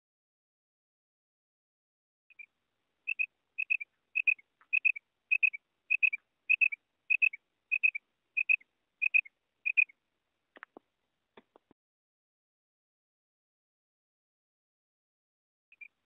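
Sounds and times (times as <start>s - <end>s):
quail calling: 3.1s - 10.0s.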